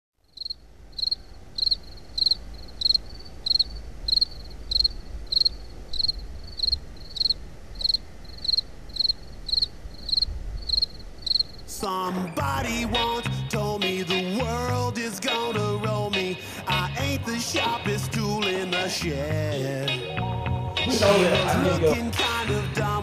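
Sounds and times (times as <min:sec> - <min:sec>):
cricket chirping: 0:00.2 - 0:11.7.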